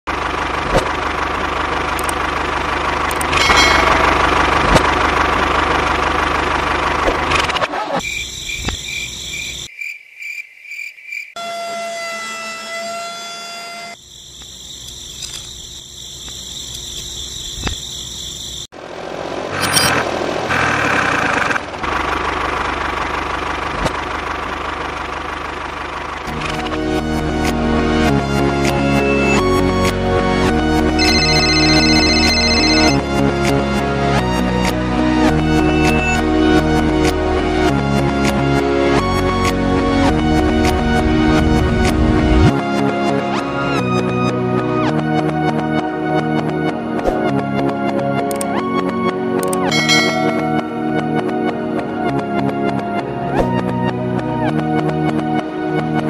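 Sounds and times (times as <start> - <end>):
engine idling: 0.1 - 7.6, 18.4 - 32.8
sharp clicks: 3.0 - 3.4.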